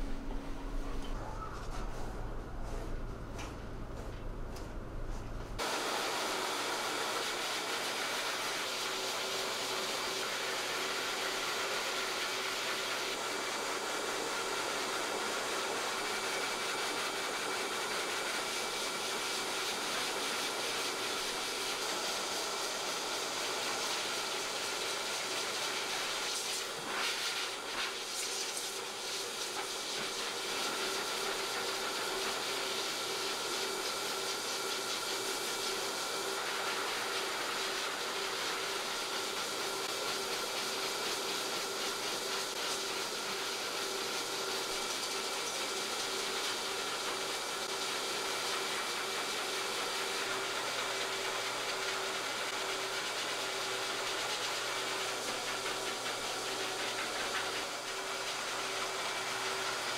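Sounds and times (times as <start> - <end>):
pet dryer blowing air: 5.6 - 59.9.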